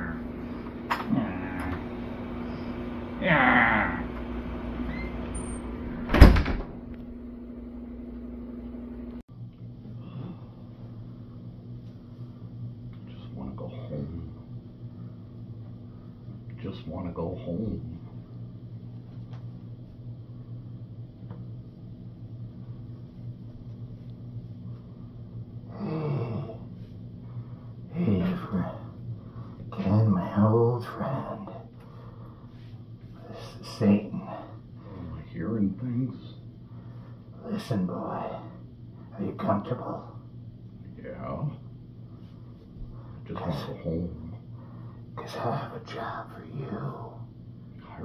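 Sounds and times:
steady low hum: 0.0 - 48.0
door slamming: 6.0 - 6.8.

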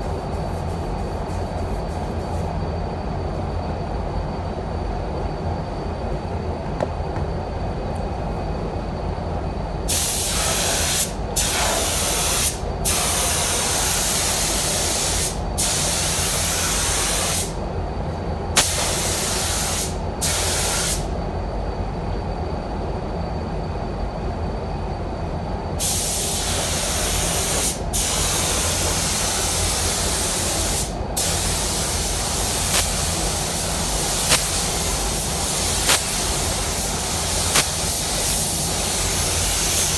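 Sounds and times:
low rumble of air flow: 0.0 - 39.9
spray gun hissing: 9.9 - 17.6, 18.6 - 21.1, 25.8 - 39.9.

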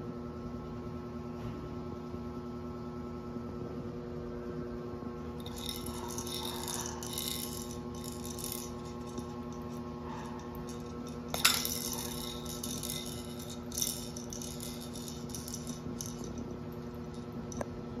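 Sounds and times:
motorised toy humming and rattling: 5.2 - 18.0.

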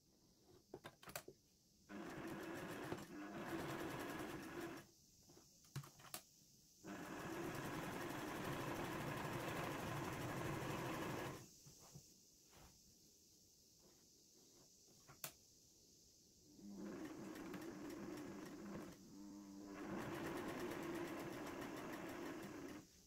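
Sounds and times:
sewing machine stitching: 1.9 - 4.9, 6.9 - 11.4, 16.6 - 22.9.

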